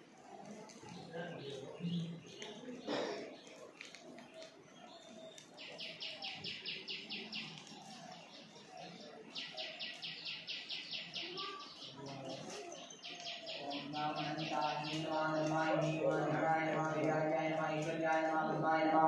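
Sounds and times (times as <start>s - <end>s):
faint low voices: 0.0s - 19.0s.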